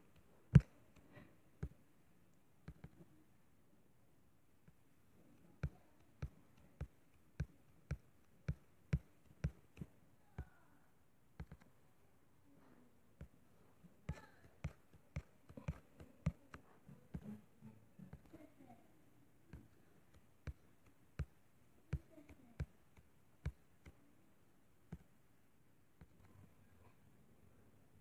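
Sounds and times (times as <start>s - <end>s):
fingers tapping touchscreen: 0.1s - 1.8s, 2.6s - 3.1s, 11.4s - 11.8s, 14.1s - 17.5s.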